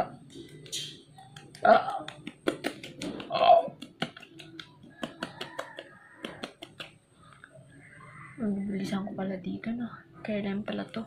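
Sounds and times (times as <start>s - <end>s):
fingertips tapping on skin: 1.2s - 7.0s.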